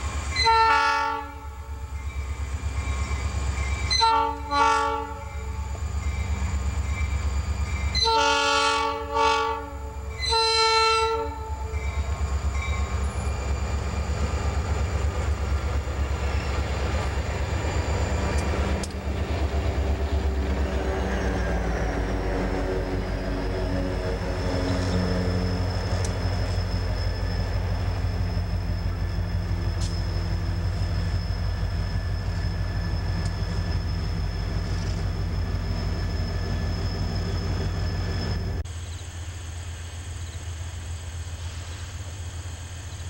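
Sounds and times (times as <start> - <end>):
diesel engine drone: 12.0 - 43.0.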